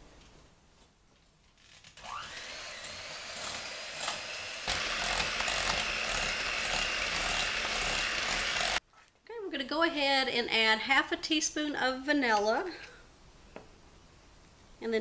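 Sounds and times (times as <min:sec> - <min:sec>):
electric hand mixer whirring: 0:02.0 - 0:08.8
beaters whisking batter: 0:04.7 - 0:08.8.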